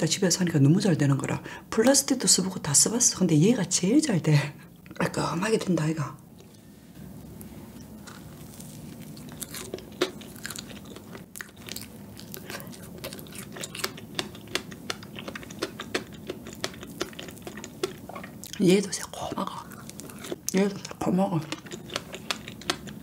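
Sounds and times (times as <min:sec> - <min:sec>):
chewing mouth clicks: 0:09.2 - 0:18.6, 0:19.6 - 0:23.0.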